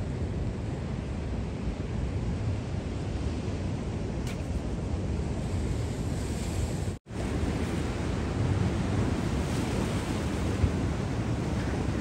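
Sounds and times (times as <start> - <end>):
wind noise on microphone: 0.0 - 12.0
ocean surf washing on beach: 4.0 - 12.0.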